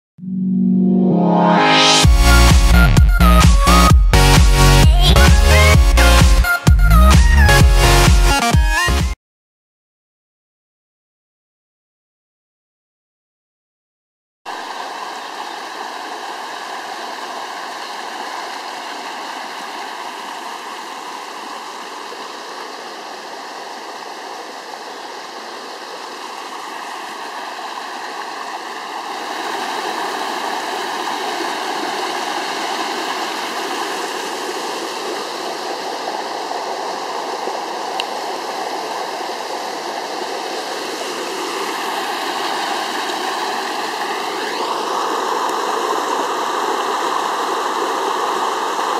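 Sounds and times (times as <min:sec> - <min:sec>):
stream water rushing over cascades: 0:14.5 - 0:48.9.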